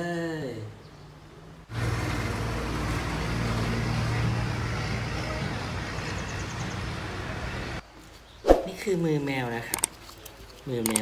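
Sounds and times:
outdoor background noise: 0.0 - 11.0
low engine hum: 1.7 - 7.8.

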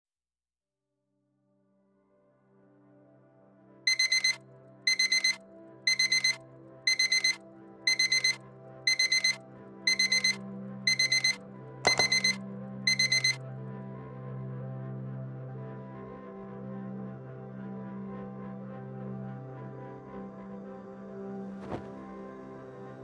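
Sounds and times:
phone alarm beeping: 3.9 - 13.4
knock: 11.9 - 12.3
ambient music drone: 12.4 - 21.4.

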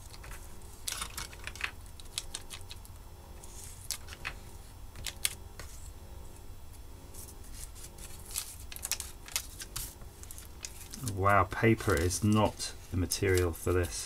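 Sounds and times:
stick scraping paper: 7.1 - 14.0.

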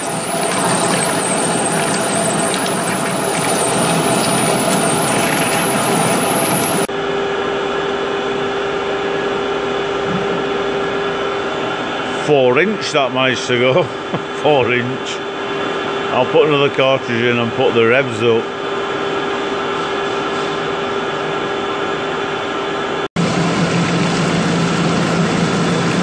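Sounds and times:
lathe cutting metal: 0.0 - 6.9
machine hum: 0.0 - 19.8, 20.8 - 26.0.

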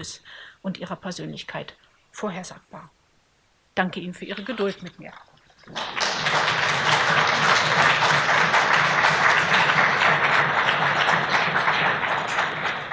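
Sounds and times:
audience applauding: 5.6 - 12.9.

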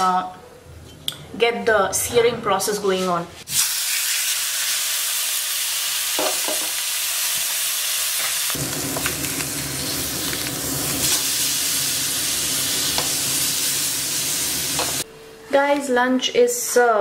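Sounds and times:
fish sizzling in a pan: 3.5 - 15.0.

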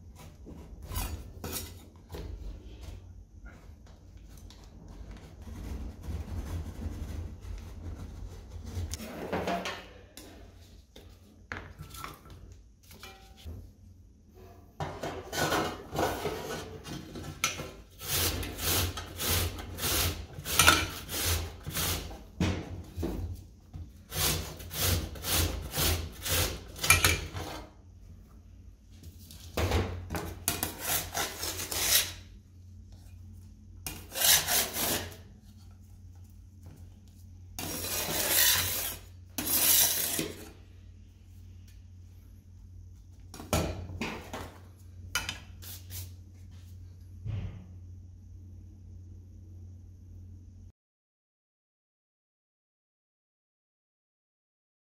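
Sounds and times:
metal scraper on steel plate: 17.5 - 22.2, 24.1 - 27.7, 30.5 - 32.3, 33.9 - 35.2, 37.6 - 40.6
cucumber rasping on grater: 24.1 - 26.8.

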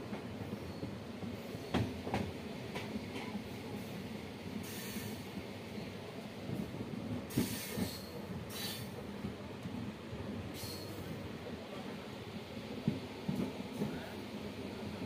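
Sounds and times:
train wheels rumbling on rail: 0.0 - 15.0
short bursts of hiss: 4.6 - 5.2, 7.3 - 8.9.

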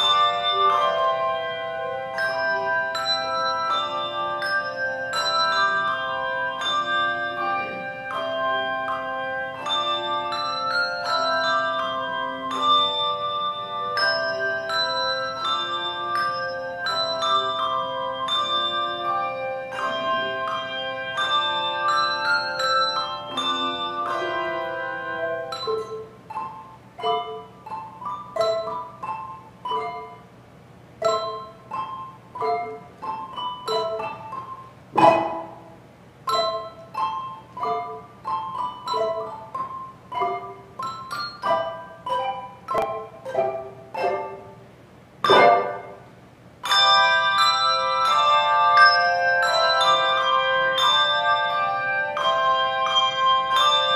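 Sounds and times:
handbell choir playing: 0.0 - 30.3, 31.0 - 44.6, 45.2 - 53.9
loud bell strikes: 2.2 - 8.6.

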